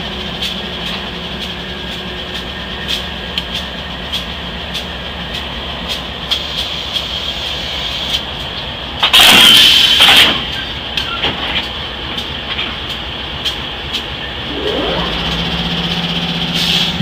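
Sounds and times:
diesel locomotive idling: 0:00.0 - 0:17.0.

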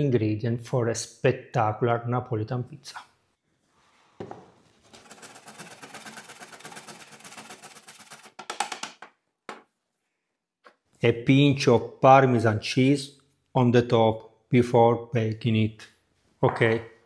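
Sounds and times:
knock: 0:04.2 - 0:04.5
cheese grating on a metal grater: 0:04.8 - 0:08.5.

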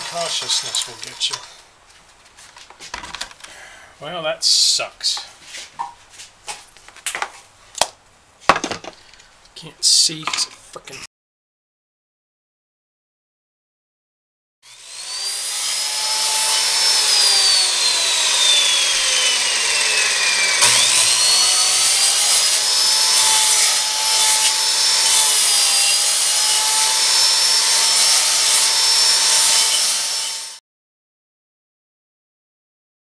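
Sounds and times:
circular saw cutting wood: 0:00.0 - 0:01.6, 0:14.6 - 0:30.6.

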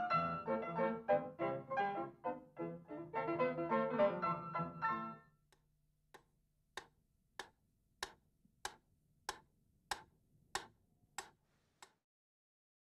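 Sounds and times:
sharp clock-like ticks: 0:06.8 - 0:12.0.

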